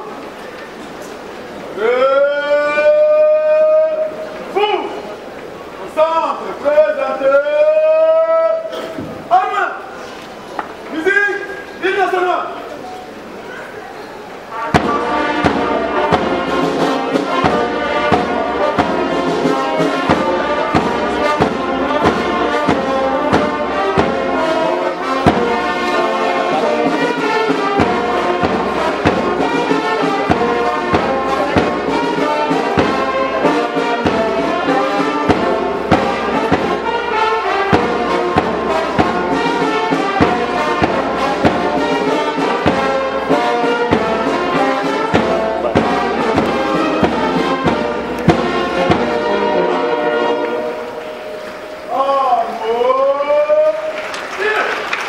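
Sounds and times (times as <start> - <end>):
brass band playing: 0.0 - 52.8
steady drum beat: 14.5 - 50.7.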